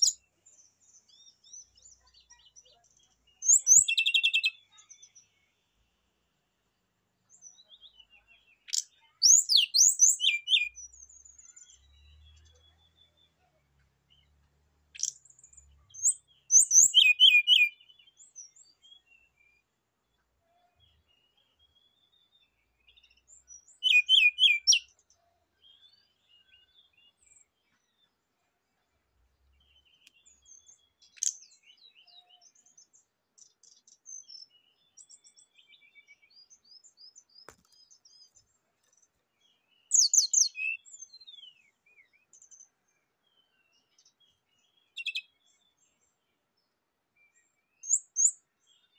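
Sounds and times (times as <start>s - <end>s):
soft bird twittering: 0.0s - 5.5s, 7.3s - 14.3s, 14.9s - 19.6s, 20.4s - 28.1s, 29.5s - 46.0s.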